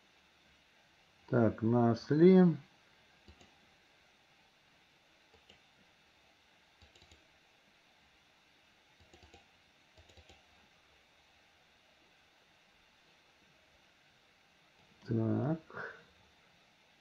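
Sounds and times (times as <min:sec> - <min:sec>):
computer mouse clicks: 0:03.2 - 0:03.6, 0:05.3 - 0:05.7, 0:06.8 - 0:07.2, 0:09.0 - 0:10.6.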